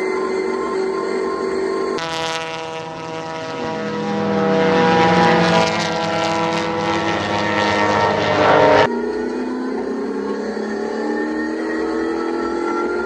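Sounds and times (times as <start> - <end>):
race car engines passing: 2.0 - 8.9.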